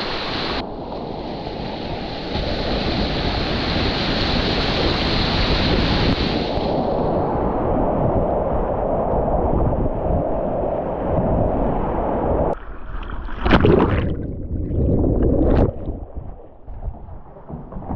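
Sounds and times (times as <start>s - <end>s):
moving water: 12.5s - 17.9s
loud splashes: 12.6s - 17.9s.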